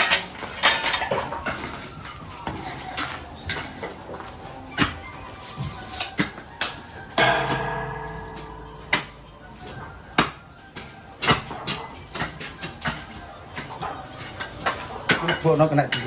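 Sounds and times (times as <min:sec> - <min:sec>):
loud ringing metal clang: 0:07.2 - 0:10.4
metallic knocks and clanks: 0:07.2 - 0:16.0.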